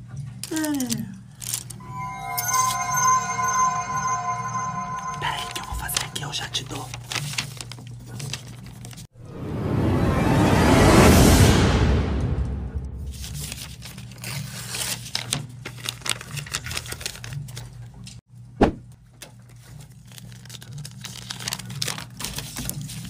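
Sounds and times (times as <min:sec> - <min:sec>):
crinkling handling noise: 0:00.4 - 0:01.8.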